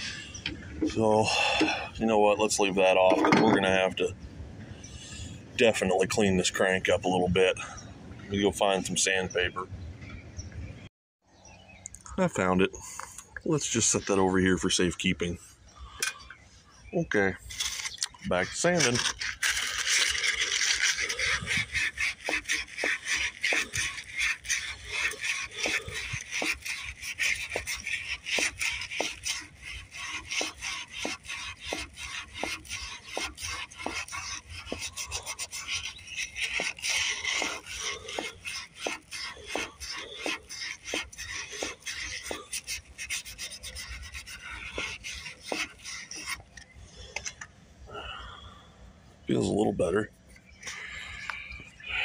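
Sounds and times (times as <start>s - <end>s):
sandpaper rubbing on steel: 17.4s - 46.5s.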